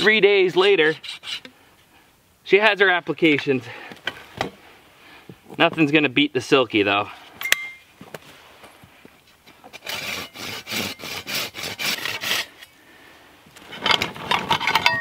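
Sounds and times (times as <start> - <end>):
clinks: 7.4 - 7.9, 13.8 - 15.0
saw cutting through wood: 9.7 - 12.6.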